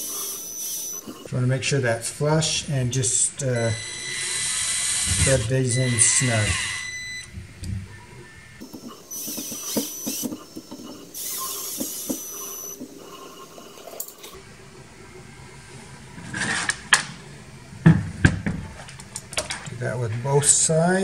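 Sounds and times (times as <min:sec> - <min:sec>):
cordless drill whining: 0:00.0 - 0:01.3, 0:03.4 - 0:07.3, 0:08.6 - 0:14.4.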